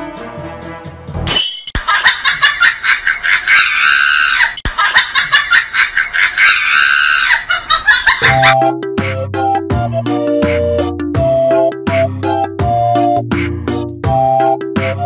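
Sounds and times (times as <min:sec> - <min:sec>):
sped-up laughter: 0:01.8 - 0:08.8.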